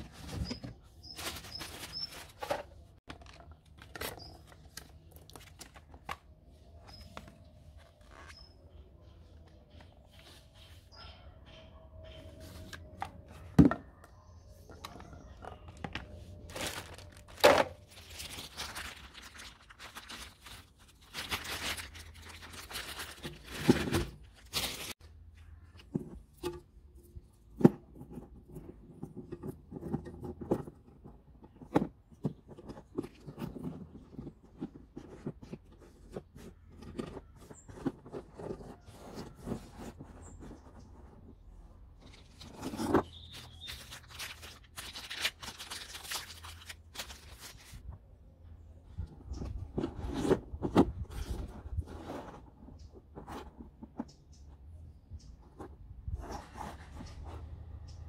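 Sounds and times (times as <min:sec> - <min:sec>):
plastic wrapping rustling and tearing: 0:00.0 - 0:06.0, 0:16.1 - 0:25.0, 0:42.2 - 0:47.8.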